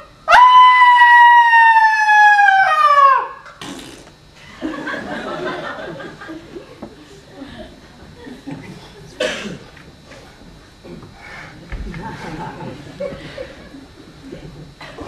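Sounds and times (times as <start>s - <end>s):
high wailing cry: 0.2s - 3.5s.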